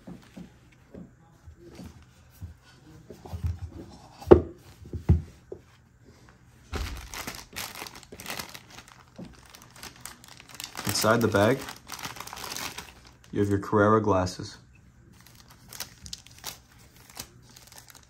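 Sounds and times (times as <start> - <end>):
plastic packaging crinkling: 6.7 - 13.5, 15.1 - 18.0.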